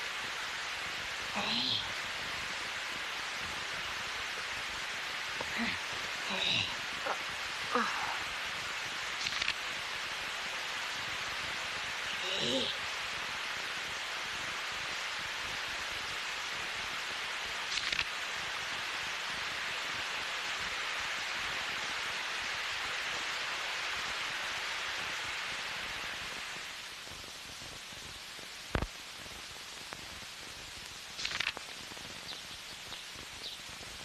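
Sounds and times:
steady hiss: 0:00.0 - 0:34.0
sharp click: 0:09.2 - 0:09.6, 0:31.2 - 0:31.6.

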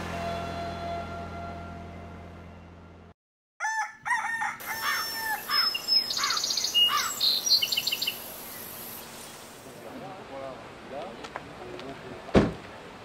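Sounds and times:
rooster crowing: 0:03.6 - 0:07.1
small birds chirping and trilling: 0:04.7 - 0:09.5.

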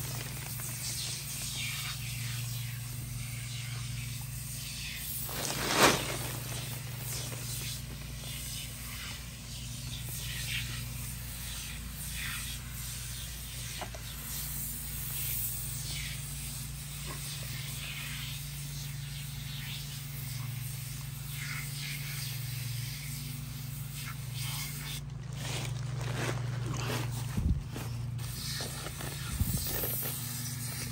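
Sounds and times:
aerosol spray hissing bursts: 0:00.0 - 0:11.7
steady low hum: 0:00.0 - 0:30.9.

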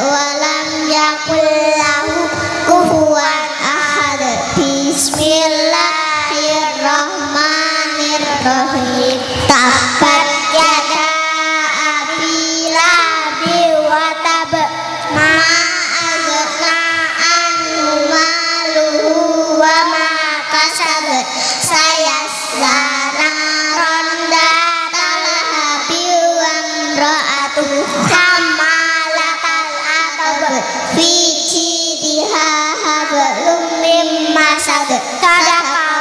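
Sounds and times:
girls chanting together: 0:00.0 - 0:26.8.

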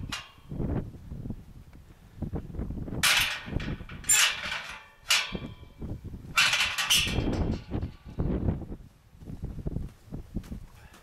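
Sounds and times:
metal gate clanking and rattling: 0:00.0 - 0:00.7, 0:03.0 - 0:08.3.

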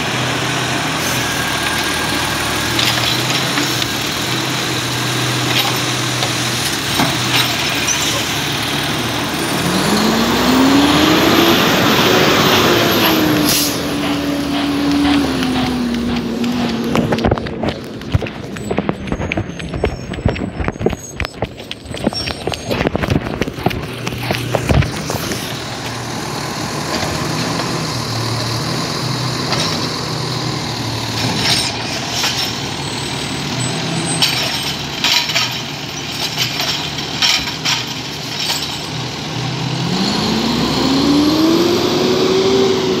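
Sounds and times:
truck engine idling and revving: 0:00.0 - 0:43.0
sharp knocks and clacks: 0:12.5 - 0:25.5.

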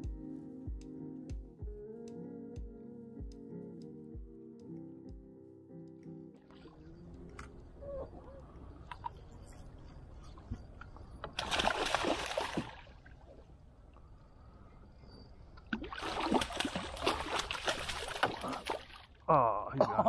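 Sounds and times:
water splashing and sloshing: 0:06.4 - 0:14.2, 0:15.4 - 0:19.3
low rumble of moving water: 0:06.5 - 0:19.7.

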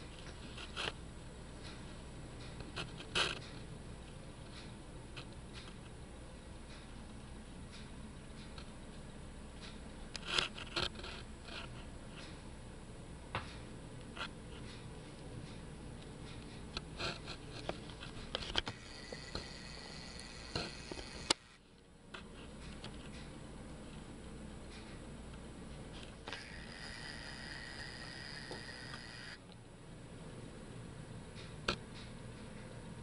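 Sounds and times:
small clicks and scrapes: 0:00.0 - 0:01.0, 0:01.6 - 0:06.0, 0:09.6 - 0:12.5, 0:13.4 - 0:23.4, 0:25.9 - 0:29.6.

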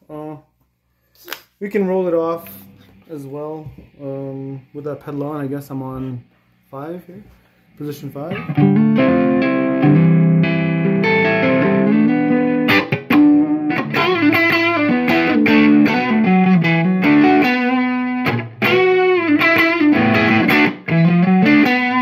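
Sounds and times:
overdriven electric guitar: 0:08.3 - 0:22.0.

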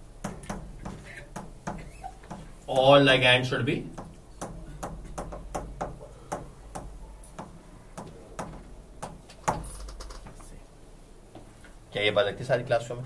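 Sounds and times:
stylus tapping on a display: 0:03.9 - 0:10.4.

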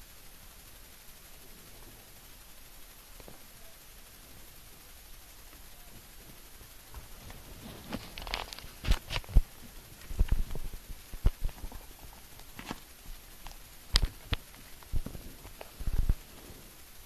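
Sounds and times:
camera handling noise: 0:07.9 - 0:09.4.

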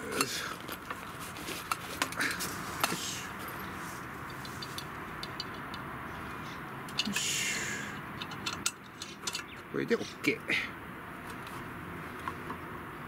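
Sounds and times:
light metal clinks: 0:01.6 - 0:05.9, 0:08.2 - 0:09.7.

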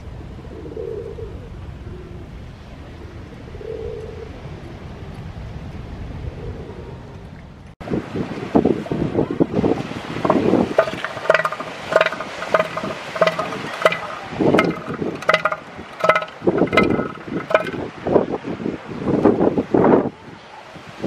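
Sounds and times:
wind: 0:00.0 - 0:21.0
surf: 0:07.8 - 0:21.0
elephant seal knocking call: 0:10.2 - 0:17.9.

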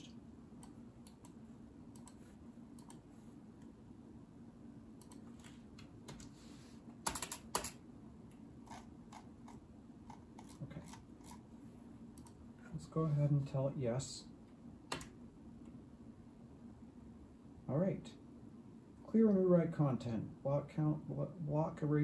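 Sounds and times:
low steady hum: 0:00.0 - 0:22.0
keyboard and mouse clicks: 0:00.6 - 0:02.2, 0:02.8 - 0:03.0, 0:05.0 - 0:06.3.

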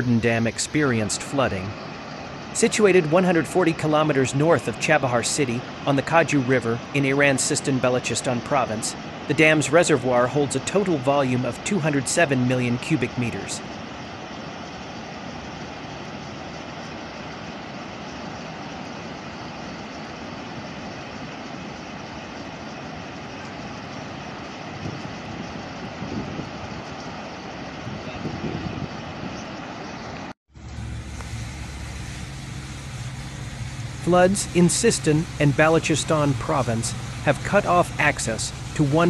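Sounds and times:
rushing water: 0:00.0 - 0:39.0
car engine low hum: 0:30.5 - 0:39.0.

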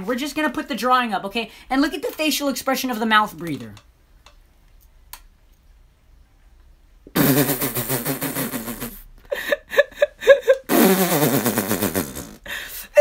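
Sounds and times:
man imitating snoring: 0:10.7 - 0:12.5.

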